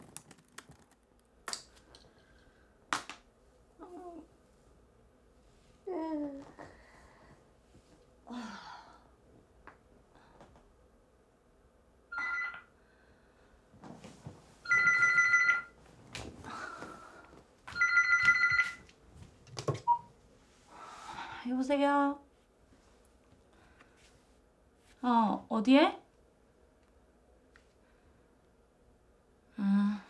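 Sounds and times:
phone ringing electronically: 12.1s - 12.7s, 14.7s - 15.8s, 17.7s - 18.9s.

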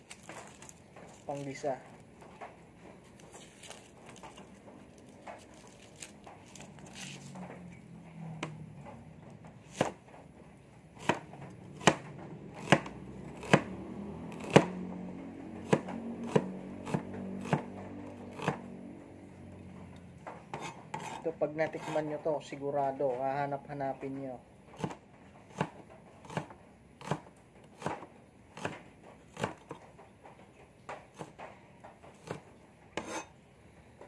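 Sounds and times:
knife chopping onion on board: 9.6s - 10.0s, 11.0s - 14.8s, 15.5s - 18.7s, 20.5s - 22.2s, 24.8s - 29.8s, 30.9s - 31.4s, 32.1s - 33.3s.

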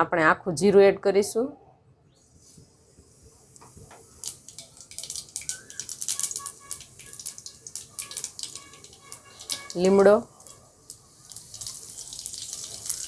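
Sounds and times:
seeds crackling in hot oil: 3.1s - 13.0s.

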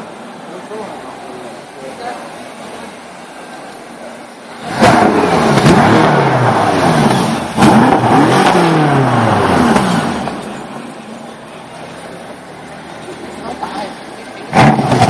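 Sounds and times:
car engine revving: 4.5s - 15.0s.

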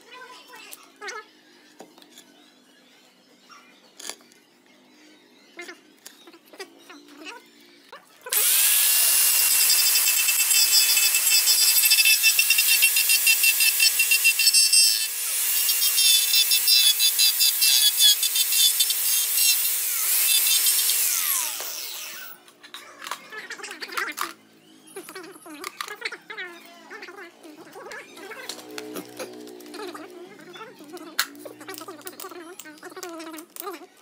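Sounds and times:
power tool grinding wood: 8.3s - 22.4s.

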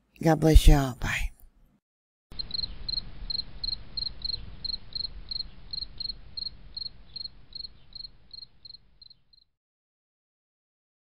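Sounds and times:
cricket chirping: 2.3s - 9.5s.

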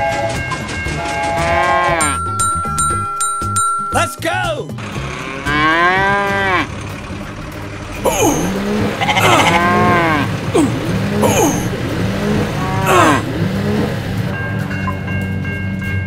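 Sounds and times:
cow mooing: 1.0s - 2.2s, 5.0s - 6.8s, 8.1s - 13.8s
goats bleating: 8.1s - 11.8s, 12.6s - 13.3s.

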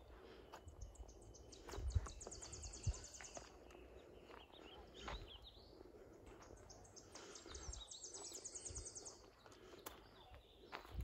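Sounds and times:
footsteps on dirt trail: 0.0s - 11.0s
songbird chirps: 0.0s - 11.0s.

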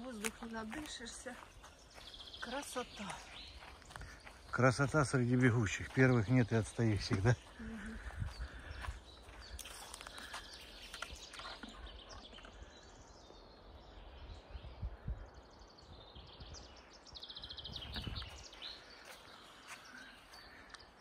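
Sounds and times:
footsteps on forest floor: 0.0s - 12.7s, 17.8s - 21.0s
songbirds singing faintly: 0.0s - 21.0s.

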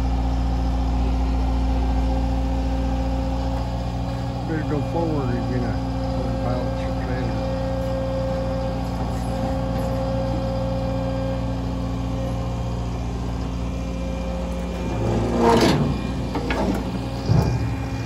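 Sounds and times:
excavator diesel engine running: 0.0s - 18.0s
metal clatter of load set down: 14.8s - 17.7s.

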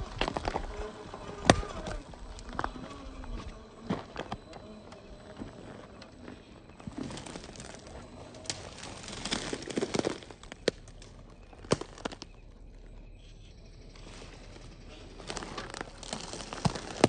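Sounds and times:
tyres crunching over loose stones: 0.0s - 17.0s
stones clicking against rock: 8.4s - 12.4s.

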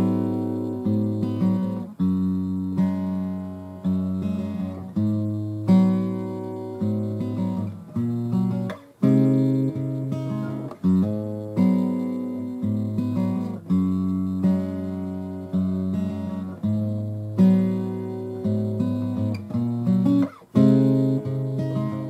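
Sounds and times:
guitar chords ringing: 0.0s - 22.0s.

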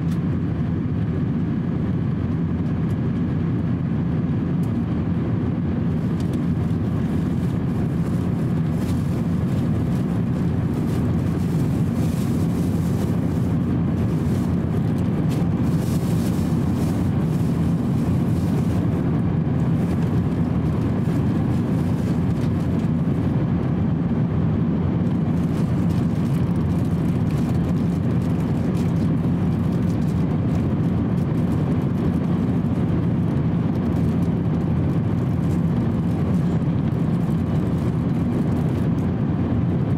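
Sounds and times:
airplane cabin rumble: 0.0s - 39.9s.

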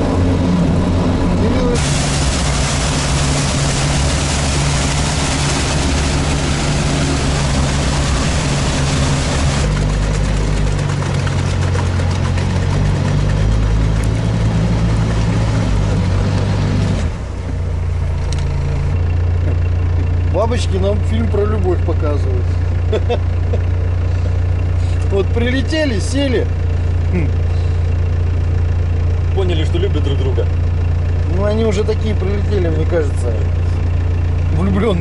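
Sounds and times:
vehicle engine drone: 0.0s - 35.0s
hiss of wind or water: 1.8s - 9.7s.

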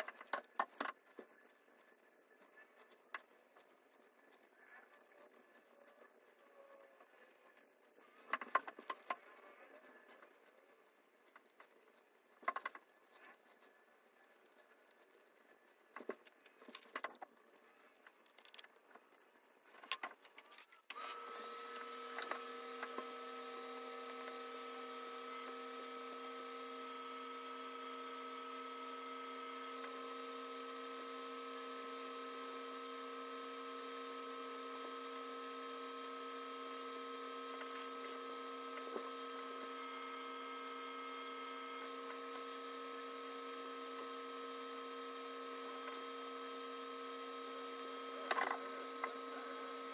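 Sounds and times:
soft taps and scrapes: 7.1s - 20.8s.

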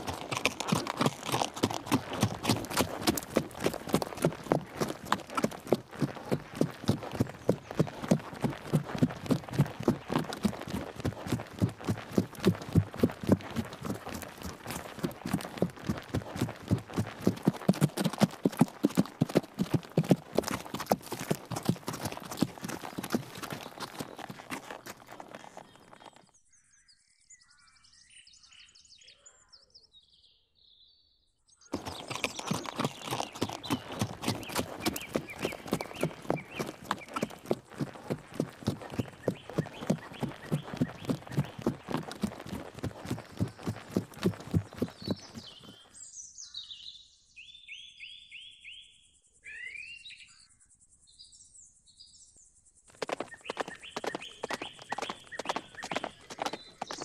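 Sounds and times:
horse hoofbeats on turf: 0.0s - 26.2s, 31.7s - 45.8s, 53.0s - 57.0s
small birds chirping: 0.0s - 26.4s, 31.6s - 47.0s, 52.9s - 57.0s
songbirds singing: 0.0s - 57.0s.

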